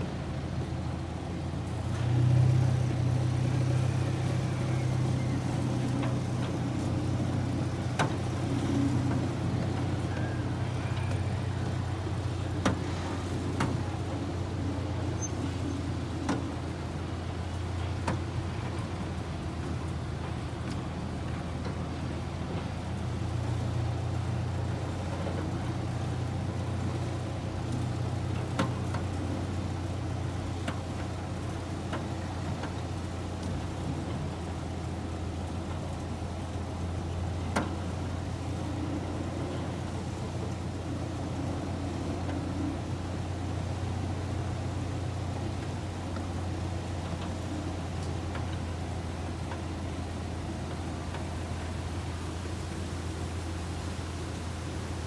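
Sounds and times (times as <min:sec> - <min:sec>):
miniature train engine drone: 0:00.0 - 0:55.0
train ride rumble: 0:00.0 - 0:55.0.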